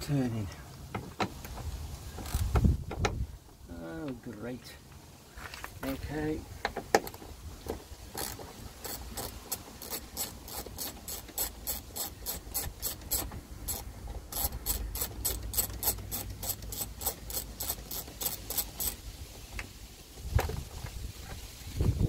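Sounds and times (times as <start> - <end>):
socket ratchet clicking: 8.1 - 19.0.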